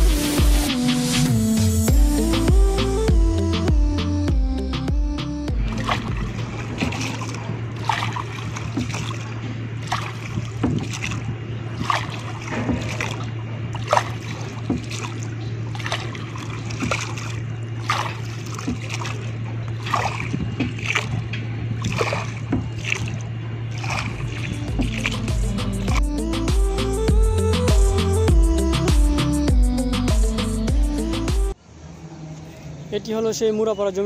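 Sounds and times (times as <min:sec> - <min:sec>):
steady low hum: 0:00.0 - 0:34.0
oar splashing in water: 0:05.4 - 0:26.6.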